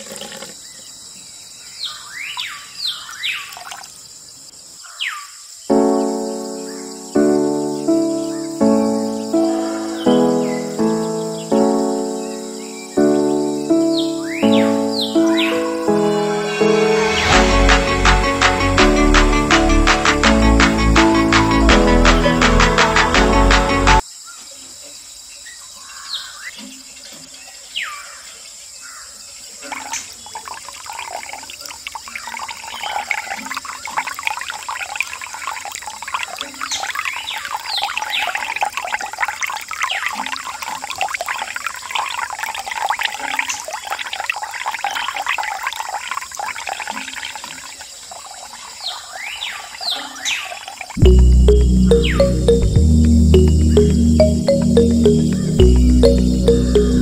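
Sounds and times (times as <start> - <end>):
water dripping into basin: 3.0 - 4.3, 29.4 - 57.0
water stream splashing: 29.4 - 57.0.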